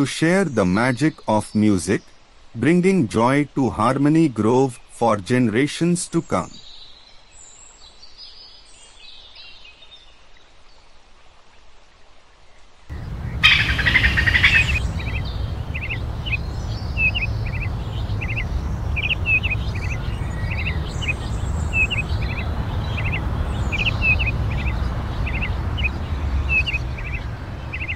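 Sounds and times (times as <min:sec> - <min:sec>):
bird chirping: 0:12.9 - 0:27.9
steady low rumble: 0:12.9 - 0:27.9.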